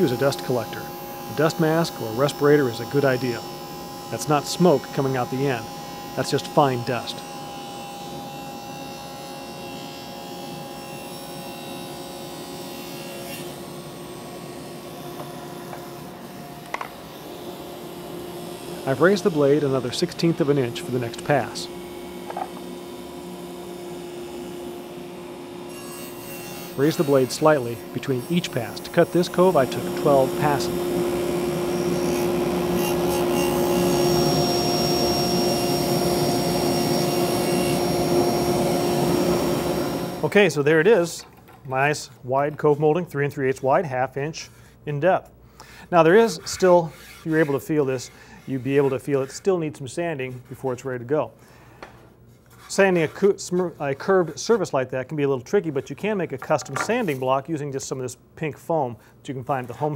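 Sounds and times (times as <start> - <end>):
table saw cutting wood: 0.0 - 40.3.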